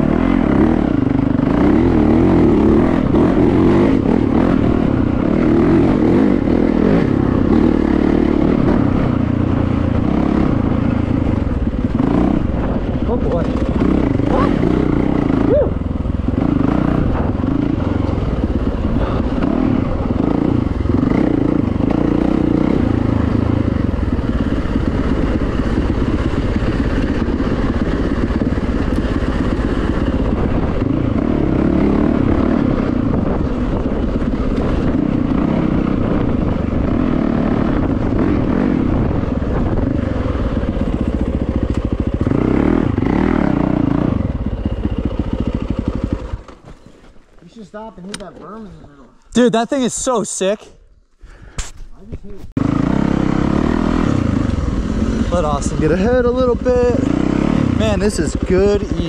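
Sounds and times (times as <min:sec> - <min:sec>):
dirt bike engine revving: 0:00.0 - 0:48.5, 0:52.6 - 0:59.0
bike clatter and scraping: 0:46.1 - 0:48.8.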